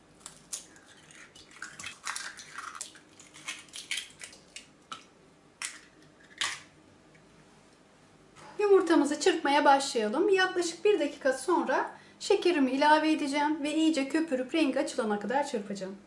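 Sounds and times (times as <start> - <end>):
eggshell crunching: 0.0 - 6.8
eggs cracking on glass bowl: 0.2 - 6.7.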